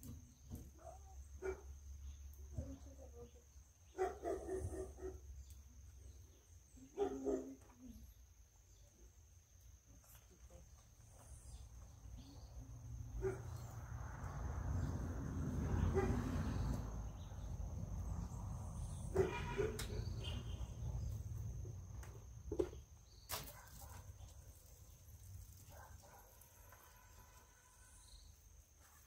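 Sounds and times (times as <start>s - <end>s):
dog barking: 0.8s - 1.7s, 3.9s - 5.2s, 6.9s - 7.7s, 13.2s - 13.5s, 15.8s - 16.3s, 19.1s - 20.0s, 25.7s - 27.0s.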